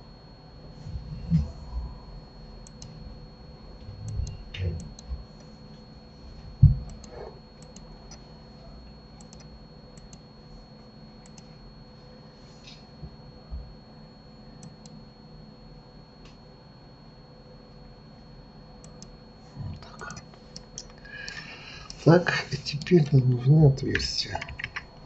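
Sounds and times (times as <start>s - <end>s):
dull low thumps: 3.8s - 5.2s, 6.5s - 7.0s
computer mouse and keyboard clicks: 6.8s - 8.2s, 9.2s - 10.2s, 23.9s - 24.9s.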